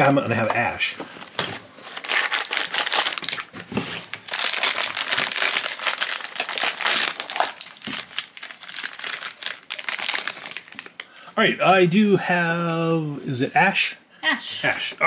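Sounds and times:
foil pouch crinkling: 0:01.2 - 0:11.2.

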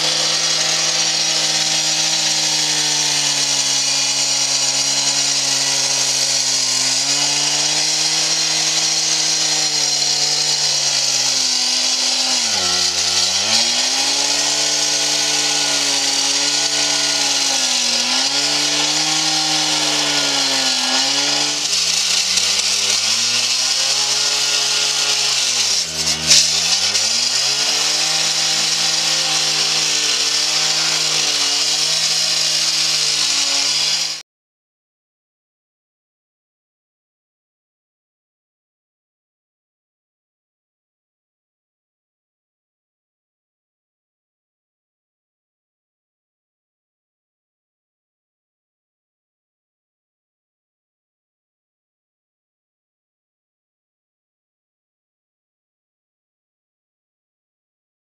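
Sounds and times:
cut-off saw cutting concrete: 0:00.0 - 0:34.2.

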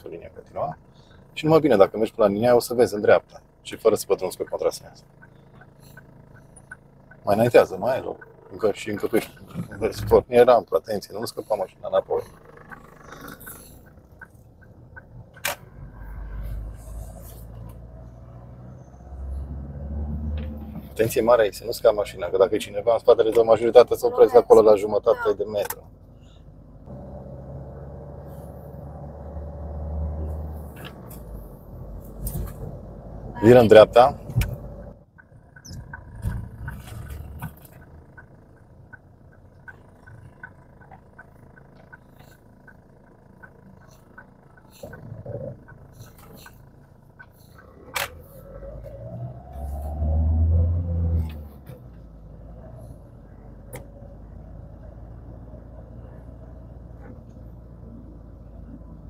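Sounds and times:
car engine revving: 0:00.0 - 0:59.0
turn signal ticking: 0:00.0 - 0:59.0.

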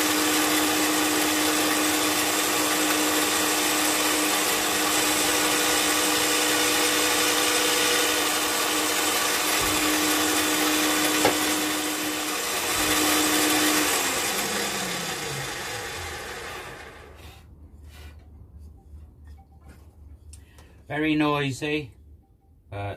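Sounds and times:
drill motor winding down: 0:00.0 - 0:17.2
pillar drill boring wood: 0:00.0 - 0:17.4.

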